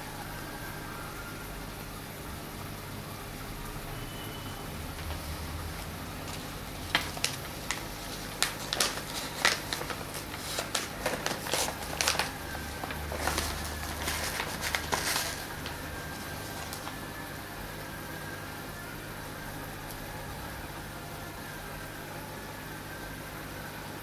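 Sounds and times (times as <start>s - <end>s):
plastic pouch crinkling: 5.0s - 17.1s.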